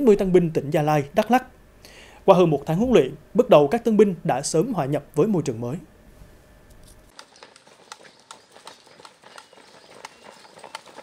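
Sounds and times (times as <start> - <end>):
quiet outdoor ambience: 0.0 - 11.0
soldiers' boot footsteps on pavement: 7.1 - 11.0.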